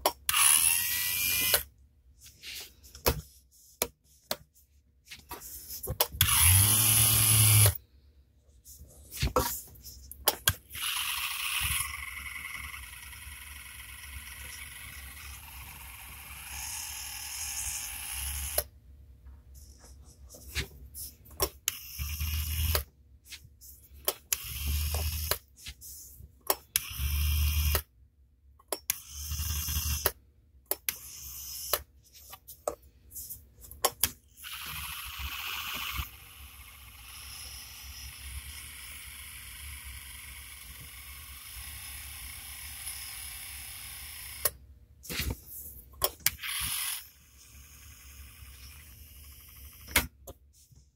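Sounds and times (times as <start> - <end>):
dental handpiece motor whine: 0.3 - 1.7, 6.2 - 7.8, 10.7 - 18.7, 21.7 - 22.9, 24.3 - 25.4, 26.8 - 27.8, 34.4 - 44.6, 46.3 - 50.0.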